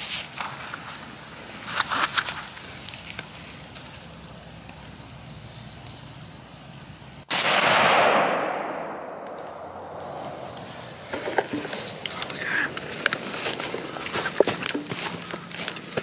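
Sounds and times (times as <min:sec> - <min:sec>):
shotgun blast with echo: 0:07.3 - 0:11.0
faint background hiss: 0:08.2 - 0:15.8.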